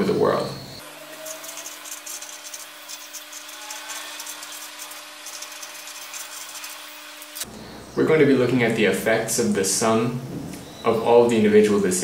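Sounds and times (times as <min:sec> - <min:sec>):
low electrical hum: 0:00.0 - 0:12.0
pen scratching on paper: 0:01.3 - 0:07.0.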